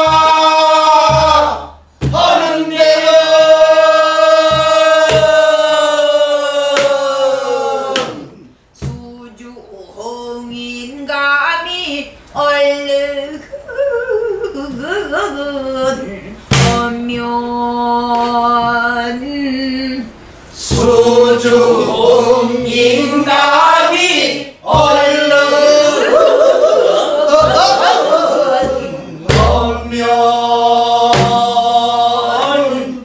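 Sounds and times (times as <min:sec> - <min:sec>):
group singing together: 0:00.0 - 0:10.9, 0:14.7 - 0:33.0
barrel drum thuds: 0:01.0 - 0:02.5, 0:04.4 - 0:05.5, 0:16.5 - 0:16.9, 0:28.6 - 0:30.0, 0:31.1 - 0:31.6.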